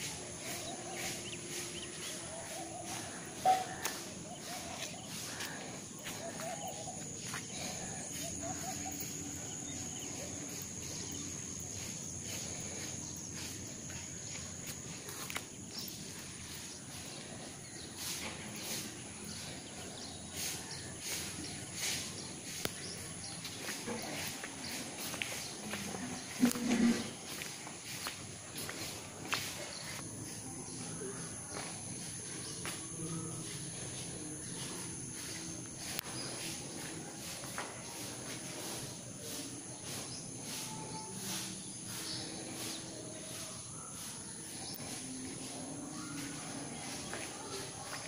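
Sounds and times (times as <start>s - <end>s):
faint distant calls: 0.0s - 30.0s.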